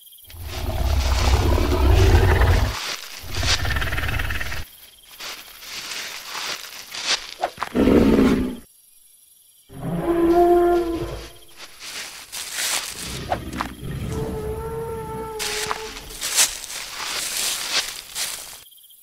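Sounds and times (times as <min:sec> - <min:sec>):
creature roars and growls: 0:00.3 - 0:04.6, 0:07.6 - 0:08.6, 0:09.7 - 0:11.6, 0:12.9 - 0:17.4.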